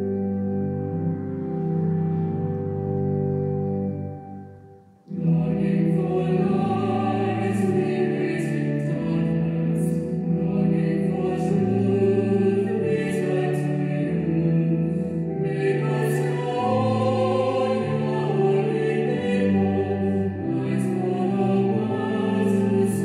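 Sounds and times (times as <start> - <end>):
organ chord: 0.0 - 23.0
choir singing a hymn: 5.1 - 23.0.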